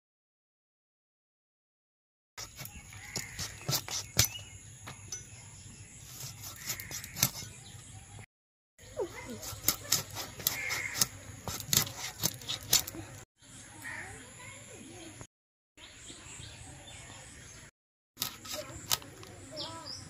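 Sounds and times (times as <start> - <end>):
knife scraping fish scales: 2.4 - 4.5, 6.0 - 7.6, 9.2 - 13.2, 18.2 - 19.0.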